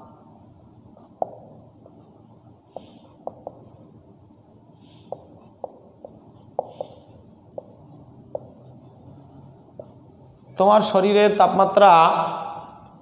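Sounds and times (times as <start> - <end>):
marker scratching on whiteboard: 0.0 - 4.0, 4.8 - 10.2
low steady hum: 0.0 - 13.0
marker tapping on whiteboard: 1.0 - 2.1, 2.7 - 3.9, 5.0 - 8.7, 9.7 - 10.0.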